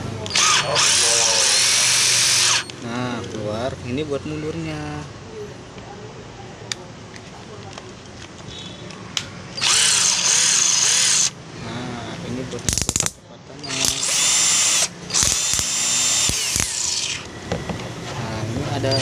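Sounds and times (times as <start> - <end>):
cordless drill motor whining: 0.3 - 2.7, 9.6 - 11.4, 13.6 - 17.4.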